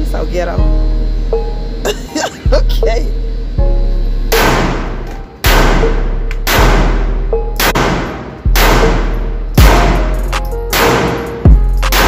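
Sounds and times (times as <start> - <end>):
pistol shots: 4.3 - 12.0.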